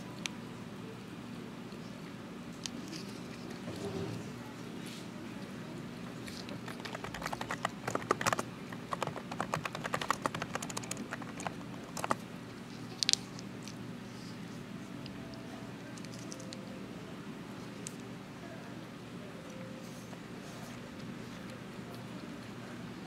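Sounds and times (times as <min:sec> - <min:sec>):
steady low hum: 0:00.0 - 0:23.0
light clicks and crinkles: 0:15.9 - 0:16.6.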